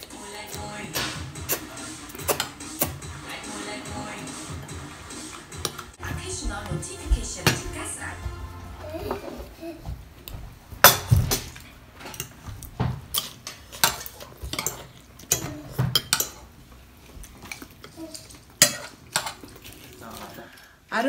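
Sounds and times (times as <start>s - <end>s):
cutlery clinking on plates: 1.0s - 3.0s, 10.8s - 16.5s, 17.4s - 19.7s.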